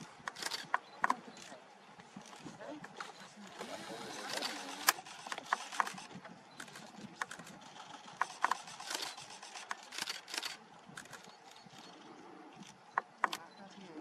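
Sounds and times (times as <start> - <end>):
sharp irregular clicks: 0.2 - 1.6, 4.2 - 12.0, 12.6 - 13.7.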